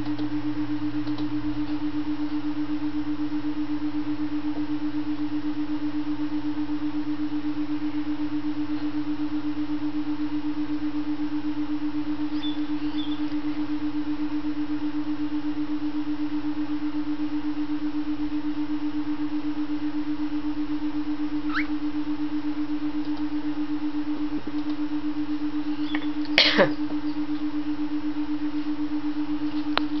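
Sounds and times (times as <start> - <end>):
pulsing humming tone: 0.0 - 30.0
downward sweeping bird call: 12.3 - 13.3
rising bird chirp: 12.3 - 13.6, 21.5 - 21.8, 25.7 - 26.2.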